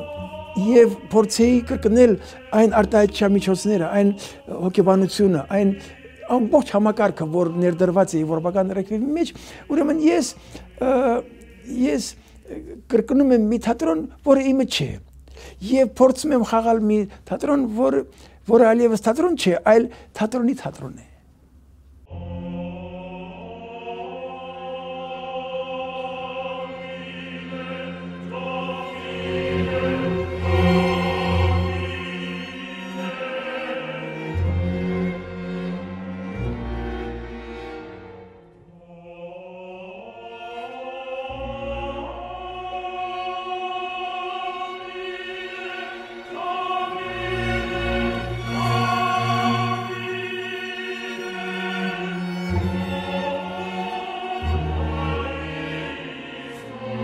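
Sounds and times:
choir singing sustained chord: 0:00.0 - 0:12.8, 0:22.0 - 0:57.0
orchestral strings: 0:00.0 - 0:21.0, 0:21.9 - 0:57.0.

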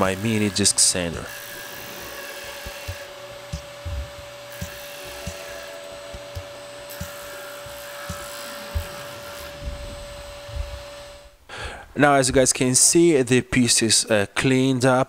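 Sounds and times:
disc sander motor hum: 0:00.0 - 0:11.4.

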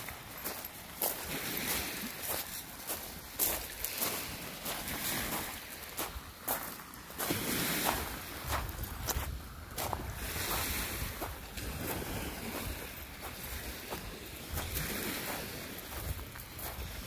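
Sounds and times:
footsteps crunching on gravel: 0:00.0 - 0:17.0
small waves on pebble shore: 0:00.0 - 0:17.0
wind rumbling on microphone: 0:03.4 - 0:17.0.

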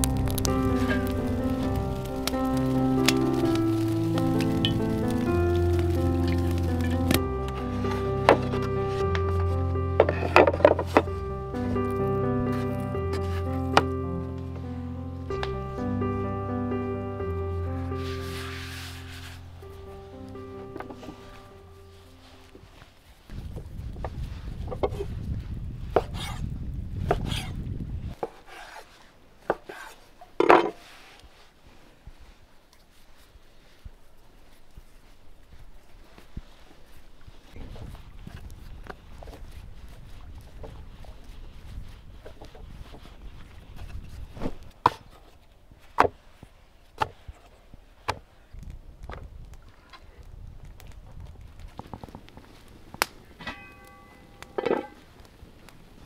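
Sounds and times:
low rumble: 0:00.0 - 0:25.9.

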